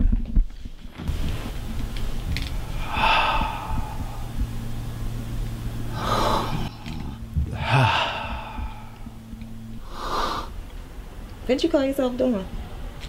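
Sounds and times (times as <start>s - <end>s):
low steady hum: 0.0s - 13.0s
man sighing: 6.0s - 9.4s.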